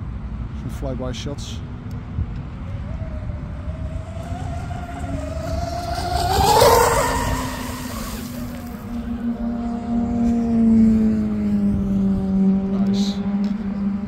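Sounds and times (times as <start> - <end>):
wind rumble on microphone: 1.6 - 14.0
electric motors whining: 2.6 - 9.8.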